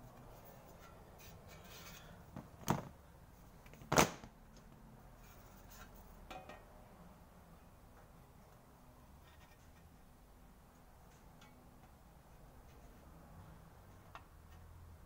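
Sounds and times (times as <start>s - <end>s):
faint handling scrapes: 0.0s - 2.3s, 5.1s - 6.2s.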